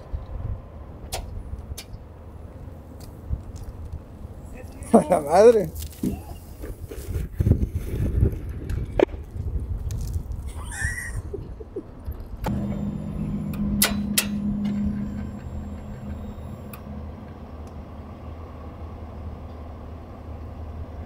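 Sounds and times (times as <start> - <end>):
steady hum: 12.4 - 21.0.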